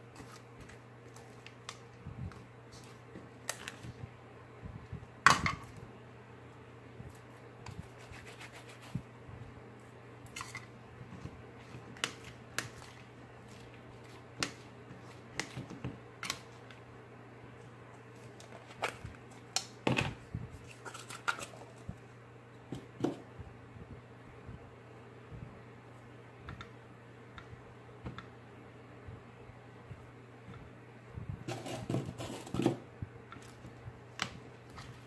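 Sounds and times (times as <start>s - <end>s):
steady low hum: 0.0s - 35.0s
plastic spoon scraping bowl: 31.5s - 32.8s.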